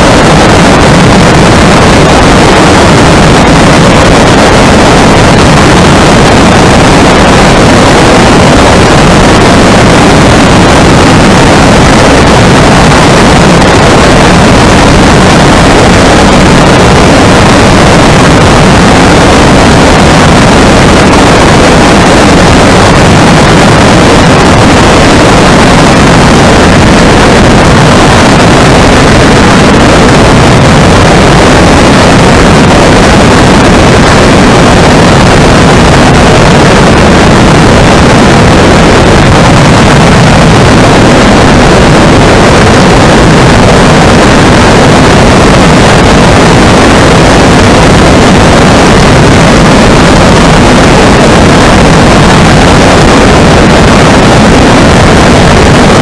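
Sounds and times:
wind rushing over microphone: 0:00.0 - 0:56.0.

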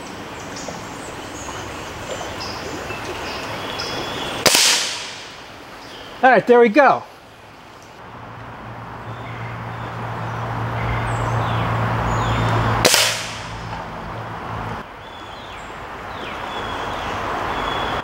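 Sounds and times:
pellet rifle shot crack: 0:04.4 - 0:05.4, 0:12.8 - 0:13.6.

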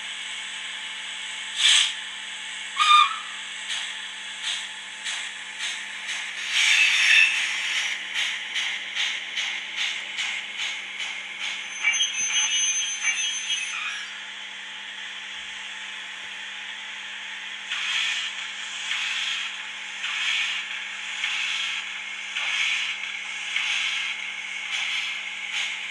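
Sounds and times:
steam locomotive exhaust chuffs: 0:01.5 - 0:02.1, 0:02.7 - 0:13.2, 0:17.6 - 0:25.9
steam hiss: 0:01.6 - 0:02.0, 0:17.7 - 0:25.9
short locomotive whistle: 0:02.8 - 0:03.4.

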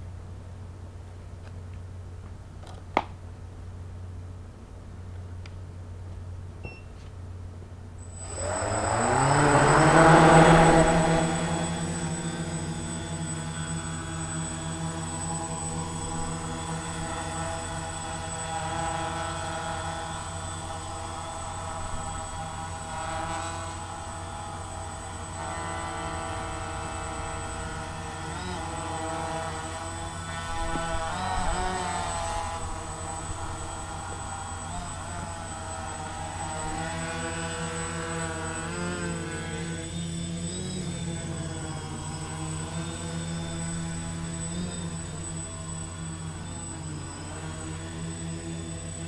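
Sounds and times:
low steady hum: 0:00.0 - 0:49.0
steady high tone: 0:08.0 - 0:19.3
quadcopter motors whining: 0:08.0 - 0:49.0.

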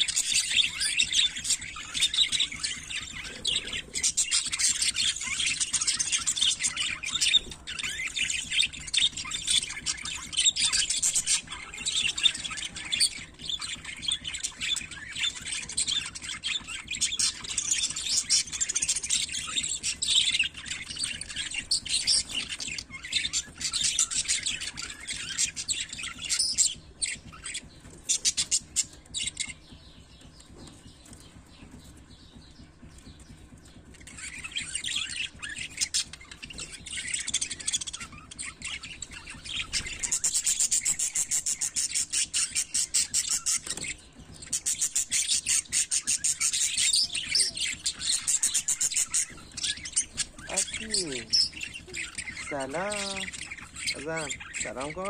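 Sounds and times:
budgerigars chattering: 0:00.0 - 0:55.0.

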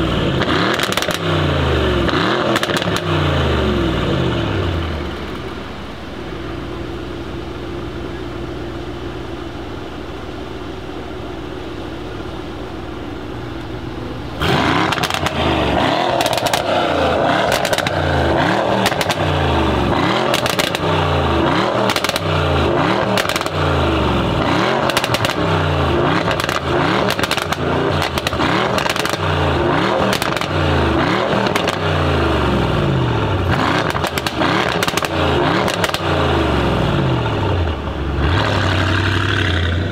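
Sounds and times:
car engine idling: 0:00.0 - 0:39.9
car engine revving: 0:00.0 - 0:39.9
exhaust crackles and pops: 0:00.4 - 0:01.3, 0:02.0 - 0:03.2, 0:14.4 - 0:23.8, 0:24.4 - 0:31.9, 0:33.3 - 0:36.5.

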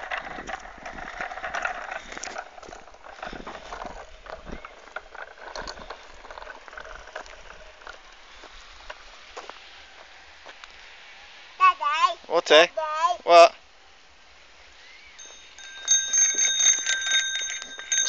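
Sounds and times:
child's bicycle rolling on concrete: 0:00.0 - 0:10.6, 0:15.2 - 0:18.0.

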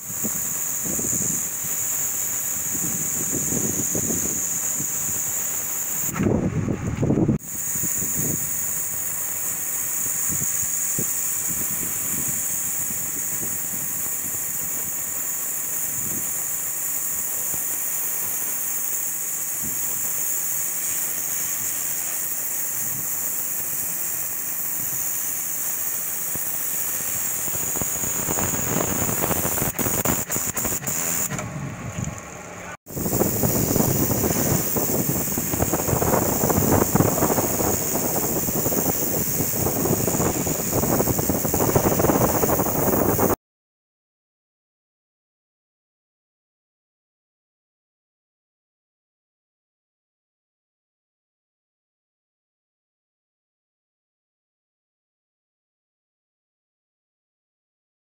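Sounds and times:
pressure washer jet hissing: 0:00.0 - 0:06.2, 0:07.4 - 0:31.4, 0:32.9 - 0:43.4.

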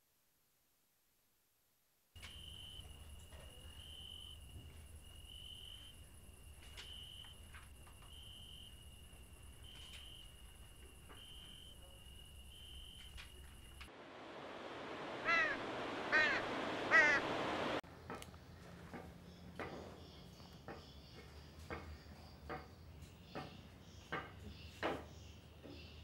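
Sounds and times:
insect chirping: 0:02.2 - 0:17.8, 0:19.3 - 0:22.4
insects buzzing: 0:02.2 - 0:17.8
steady rushing hiss: 0:13.0 - 0:17.8
crow cawing: 0:15.2 - 0:17.8.

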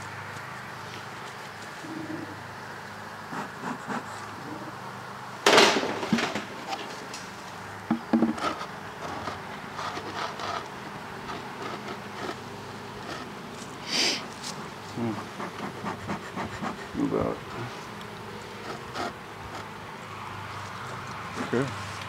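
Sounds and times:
bees buzzing: 0:00.5 - 0:21.6
wood knocking on wood: 0:07.9 - 0:09.4.

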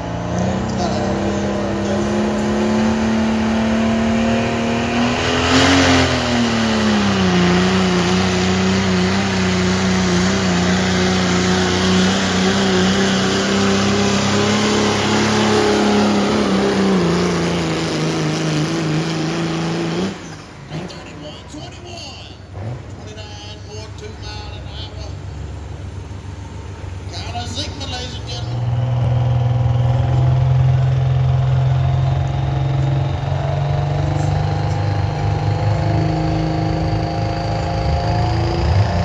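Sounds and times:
diesel engine at full throttle: 0:00.0 - 0:39.0.

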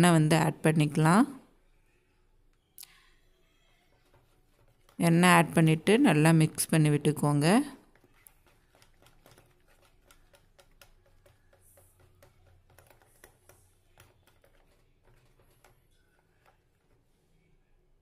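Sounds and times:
whisk clicking against plastic bowl: 0:07.8 - 0:17.0.

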